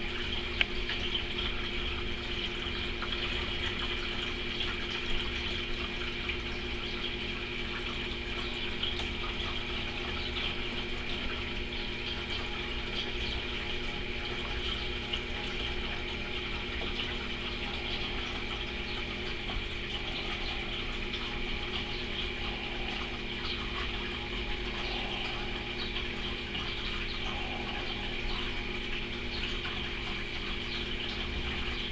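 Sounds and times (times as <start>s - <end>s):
aquarium pump motor hum: 0.0s - 31.9s
water rushing: 7.2s - 31.9s.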